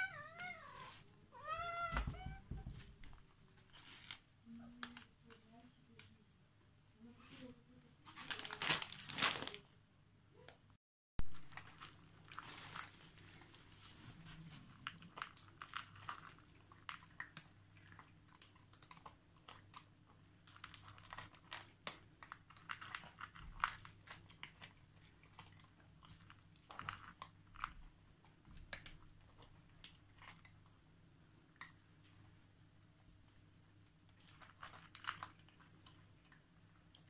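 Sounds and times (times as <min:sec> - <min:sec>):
cats crunching dry kibble: 0:03.0 - 0:05.4, 0:08.1 - 0:09.7, 0:11.3 - 0:37.0.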